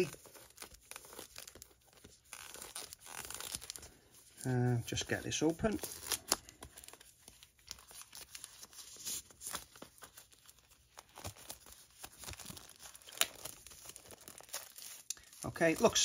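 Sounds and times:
plastic wrap crinkling and tearing: 0.0s - 16.0s.

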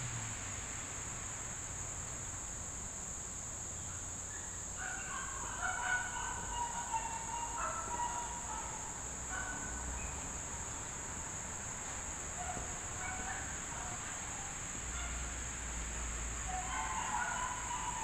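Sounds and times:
chickens calling: 4.8s - 9.7s, 16.5s - 18.0s.

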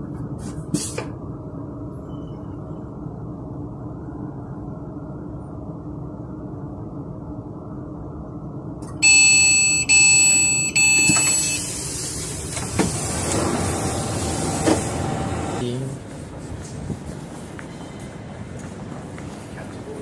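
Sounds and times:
outside noise: 0.0s - 20.0s
train carriage humming: 0.0s - 20.0s
door warning beeps: 9.0s - 12.0s
sliding door opening: 10.9s - 15.6s.

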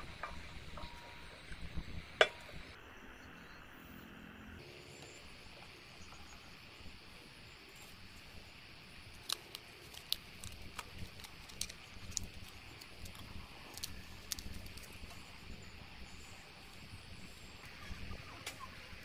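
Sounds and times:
low steady background hum: 0.0s - 19.0s.

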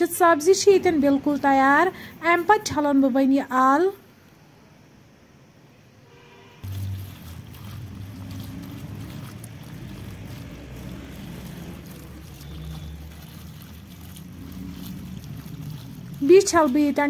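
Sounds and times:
hand rubbing wet vegetable pieces: 6.6s - 17.0s
water pouring and splashing: 6.6s - 17.0s.

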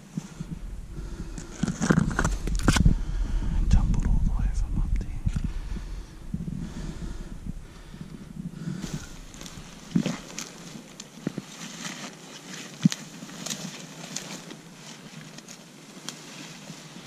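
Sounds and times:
footsteps through long grass: 5.2s - 17.0s.

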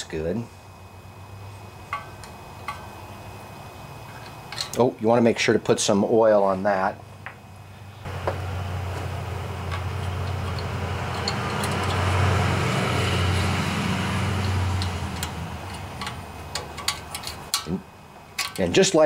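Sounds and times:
vehicle passing by: 8.1s - 16.4s.

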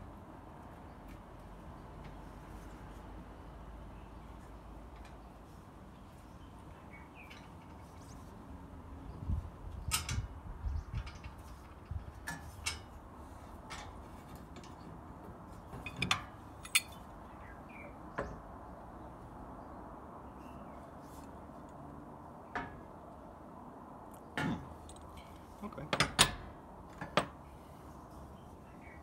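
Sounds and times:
metal tools clinking on frame: 15.8s - 17.0s.

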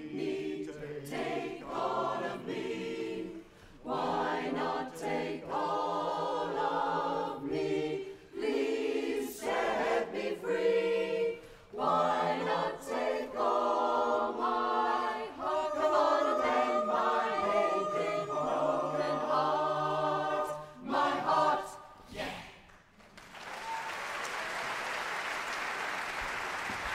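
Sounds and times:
chorus singing a cappella: 0.0s - 22.6s.

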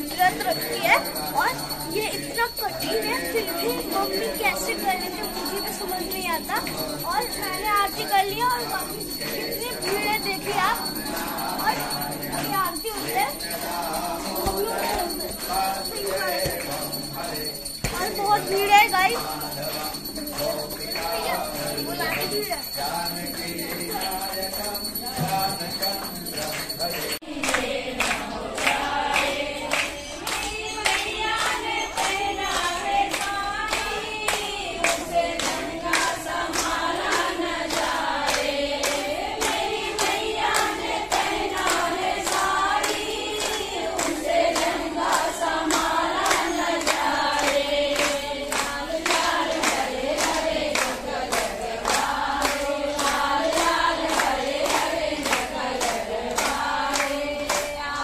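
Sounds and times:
rhythmic hand-clapping: 0.0s - 58.0s
women singing together: 0.0s - 58.0s.

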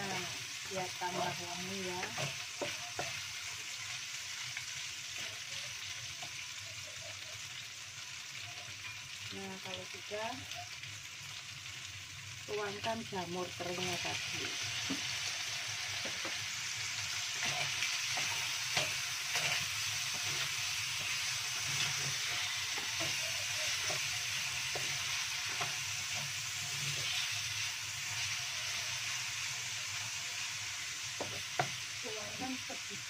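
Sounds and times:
food sizzling in oil: 0.0s - 33.0s
wooden spatula scraping pan: 17.4s - 27.4s.

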